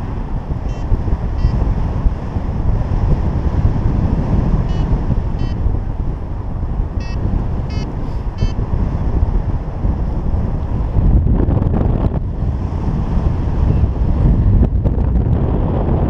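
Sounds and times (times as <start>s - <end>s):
wind rumbling on microphone: 0.0s - 16.0s
high electronic beeps: 4.7s - 5.6s, 7.0s - 8.6s.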